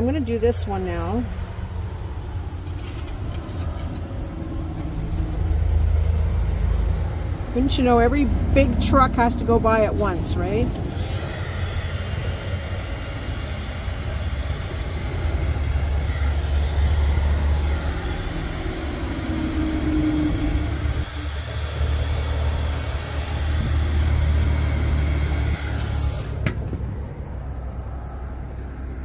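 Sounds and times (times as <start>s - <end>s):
trucks rumbling past: 0.0s - 29.0s
heat gun whining: 10.6s - 27.0s.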